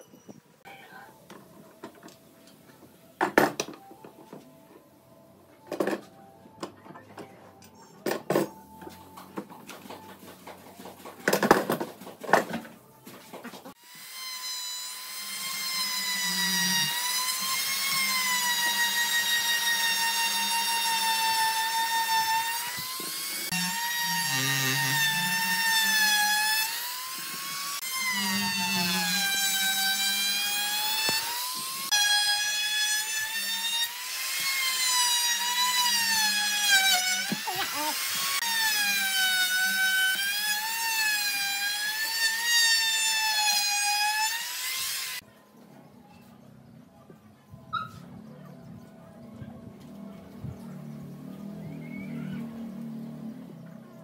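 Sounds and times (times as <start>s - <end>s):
router whining: 13.7s - 45.2s.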